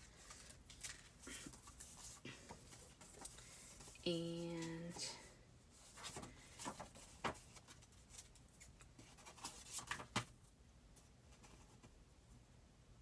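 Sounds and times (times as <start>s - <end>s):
paper rustling and tapping: 6.0s - 10.4s.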